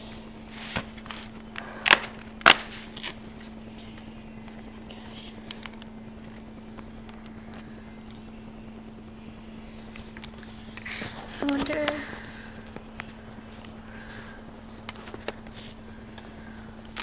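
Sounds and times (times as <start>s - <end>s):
steady low hum: 0.0s - 17.0s
cardboard cracking: 0.6s - 3.6s, 14.8s - 15.8s.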